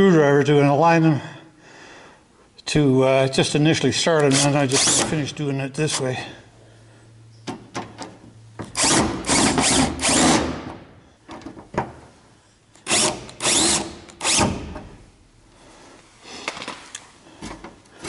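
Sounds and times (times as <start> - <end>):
cordless drill driving screws: 8.8 - 10.6, 12.8 - 14.7.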